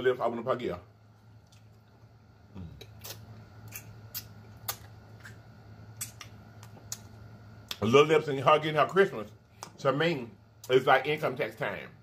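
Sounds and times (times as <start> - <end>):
low steady hum: 0.0 - 12.0
wet chewing smacks and clicks: 2.8 - 5.4, 6.0 - 7.8.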